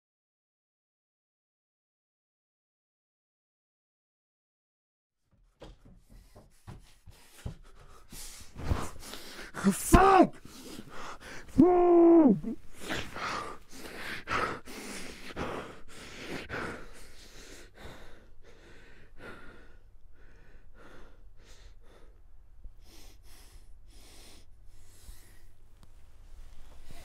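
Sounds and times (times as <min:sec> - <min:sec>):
man breathing heavily: 0:05.6 - 0:09.8, 0:10.4 - 0:11.6, 0:12.6 - 0:25.7.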